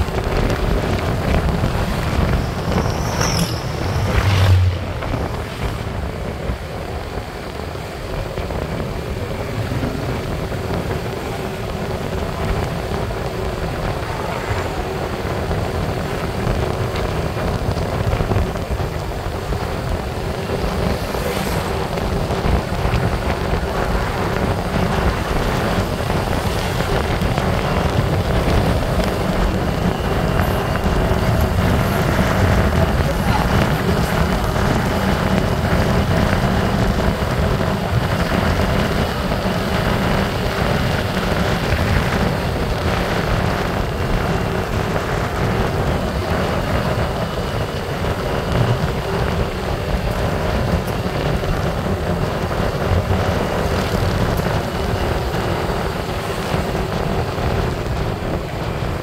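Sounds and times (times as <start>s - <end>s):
motorbike engine running: 0.0s - 59.0s
wind and road noise: 0.0s - 59.0s.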